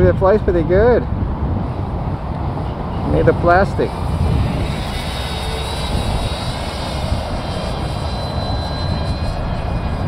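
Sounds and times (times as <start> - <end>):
wind rumble on microphone: 0.0 - 10.0
model plane motor whine: 2.7 - 10.0.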